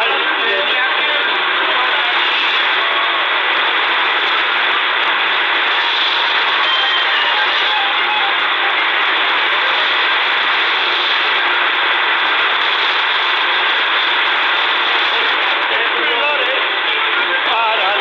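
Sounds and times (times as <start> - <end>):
shortwave radio static: 0.0 - 18.0
speech through radio static: 0.0 - 18.0.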